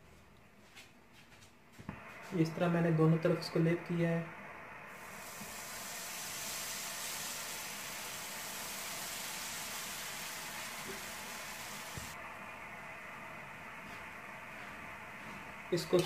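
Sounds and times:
bread sizzling in a frying pan: 4.9 - 12.2.

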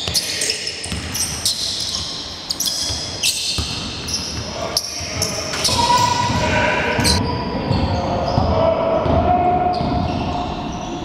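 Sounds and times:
sneakers squeaking: 0.0 - 11.0
basketball bouncing: 0.9 - 1.3, 2.8 - 4.4
voices calling out: 4.1 - 11.0.

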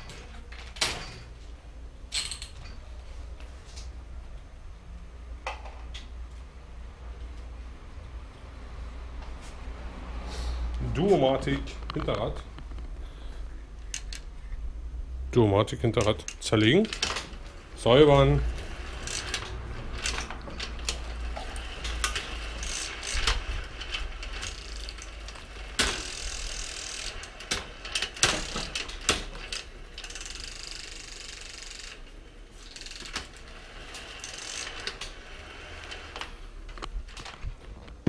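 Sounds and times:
bicycle hub clicking: 13.8 - 14.5, 16.0 - 36.8.

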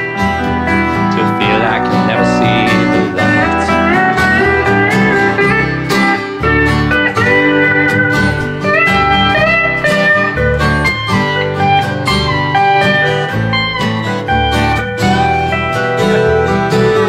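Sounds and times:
bass guitar: 0.0 - 17.0
guitar: 0.0 - 17.0
pedal steel guitar solo: 0.0 - 17.0.

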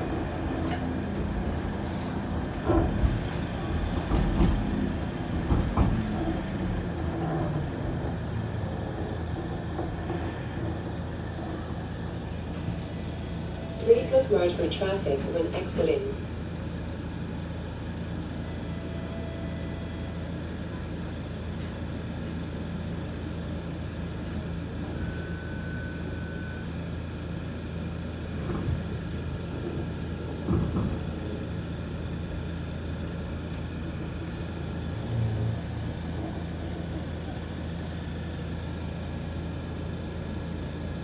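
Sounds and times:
streetcar cabin hum: 0.0 - 41.0
clunks: 2.5 - 7.8.

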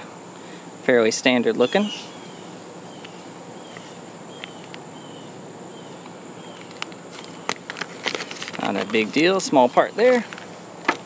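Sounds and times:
high-pitched insect drone: 0.0 - 10.8
plastic bag crinkling: 6.6 - 9.0.

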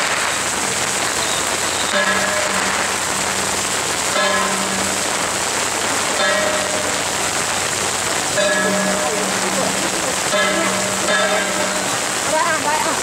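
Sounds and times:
heavy rain falling: 0.0 - 13.0.

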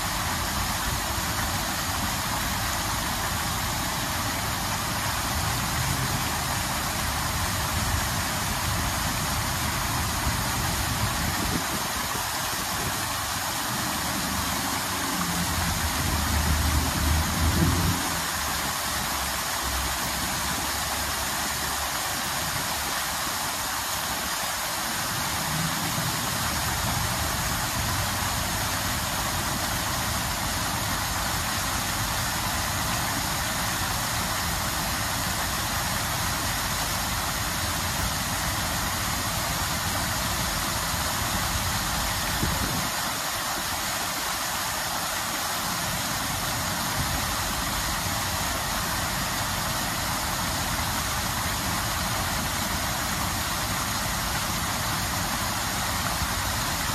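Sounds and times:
fountain water splashing: 0.0 - 56.9.

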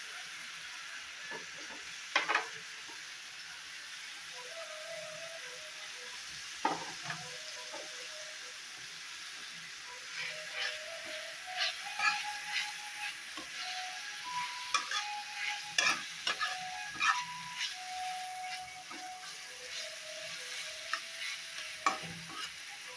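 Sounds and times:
vegetables sizzling in oil: 0.0 - 22.9
spatula scraping pan: 10.1 - 22.9.

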